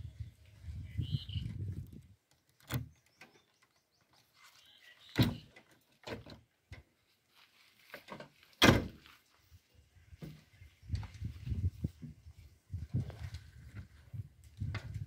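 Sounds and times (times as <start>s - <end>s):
metal clicks and clunks of door: 2.5s - 3.3s, 5.2s - 6.4s.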